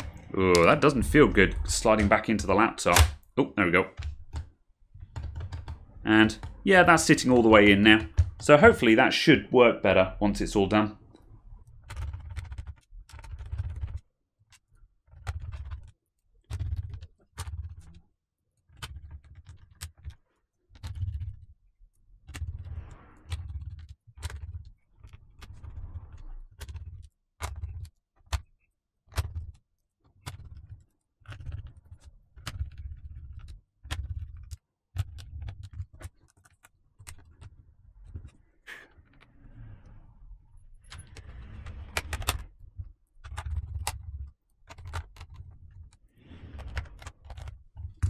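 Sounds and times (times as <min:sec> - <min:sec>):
low rumble: 0:00.0 - 0:02.6
screws and plastic parts clicking: 0:11.7 - 0:18.0, 0:23.3 - 0:39.4, 0:40.8 - 0:48.0.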